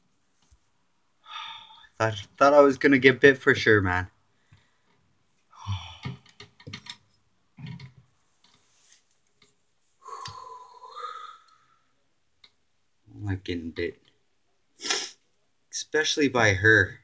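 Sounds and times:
man's breathy voice sounds: 0:05.5 - 0:06.3.

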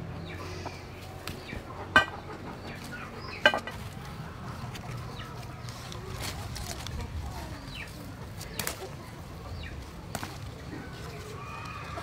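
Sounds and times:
chicken clucking: 0:00.2 - 0:08.0.

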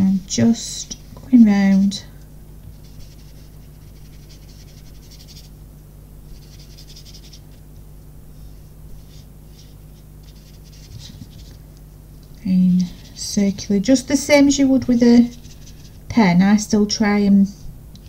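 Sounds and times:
faint low hum: 0:00.0 - 0:18.0
paintbrush swishing on card: 0:08.3 - 0:11.6.

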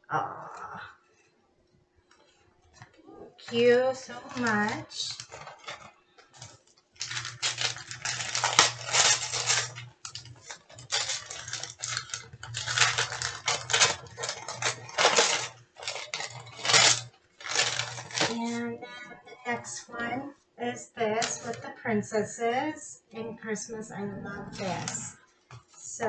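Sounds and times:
wrapping crinkling and rustling: 0:02.2 - 0:18.7, 0:19.4 - 0:21.6, 0:24.5 - 0:25.9.

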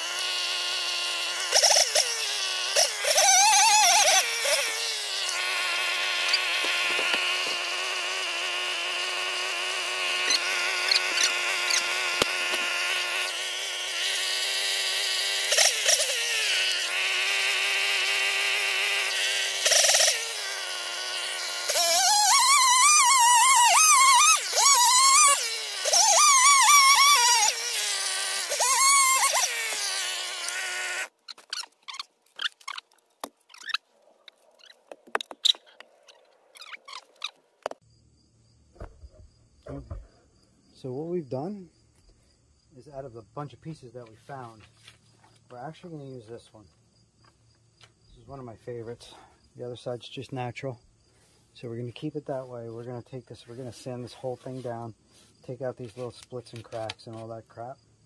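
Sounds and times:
chainsaw cutting log: 0:00.0 - 0:33.8.

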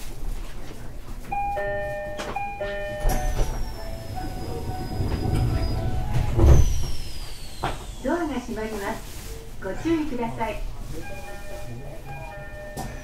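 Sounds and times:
train rumble with high whine: 0:00.0 - 0:13.0
two-note ding-dong chime: 0:01.4 - 0:03.6, 0:11.1 - 0:13.0.

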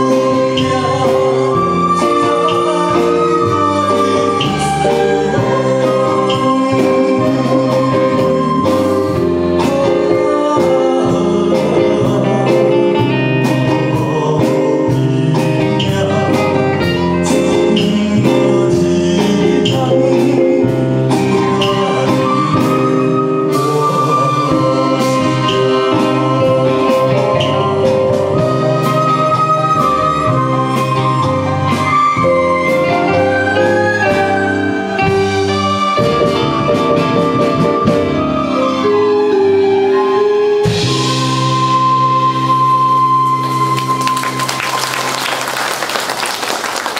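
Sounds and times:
man singing into microphone: 0:00.0 - 0:29.1.

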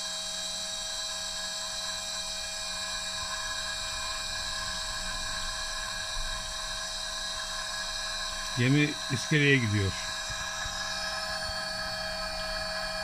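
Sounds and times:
electrical whine with high tones: 0:07.9 - 0:13.0.

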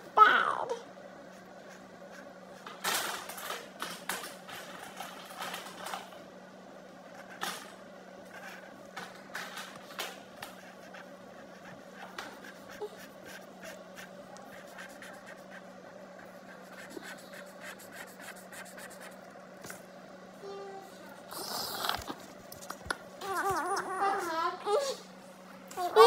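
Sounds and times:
steady low hum: 0:00.0 - 0:26.0
pencil scratching on paper: 0:10.5 - 0:19.2.

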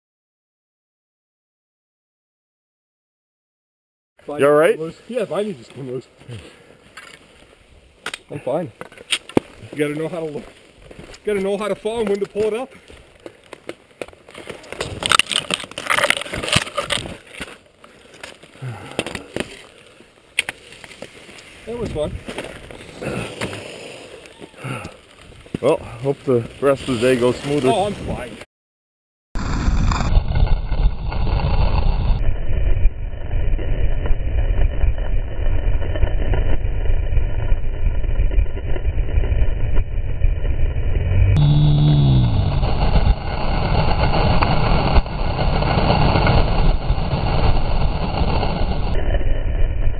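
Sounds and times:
skis scraping through snow: 0:08.5 - 0:13.2, 0:14.2 - 0:28.4
ski gear clicking: 0:10.9 - 0:21.6
wind rushing over microphone: 0:21.7 - 0:23.4, 0:25.3 - 0:28.4, 0:29.4 - 0:49.9.

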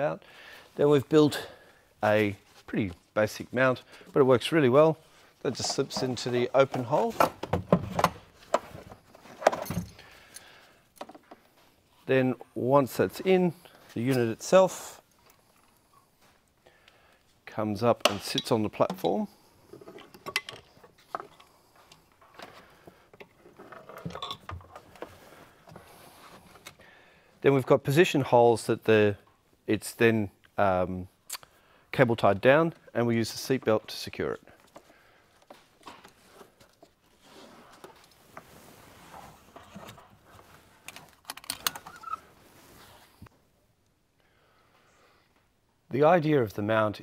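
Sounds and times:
rustling of straps: 0:34.5 - 0:43.3.

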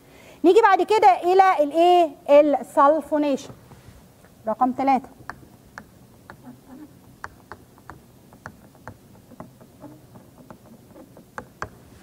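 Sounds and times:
pen tapping on whiteboard: 0:05.2 - 0:11.9.

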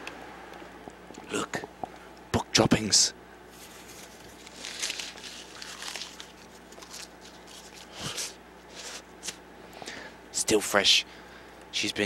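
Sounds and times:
paper rustling and crinkling: 0:03.6 - 0:09.4.

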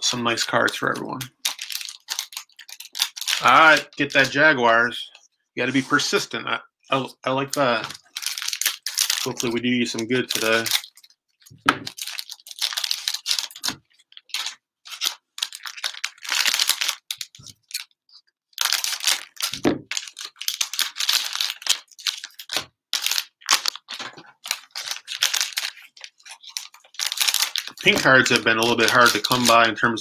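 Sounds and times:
cellophane wrappers crinkling and tearing: 0:00.2 - 0:04.4, 0:06.9 - 0:18.0, 0:18.6 - 0:30.0.

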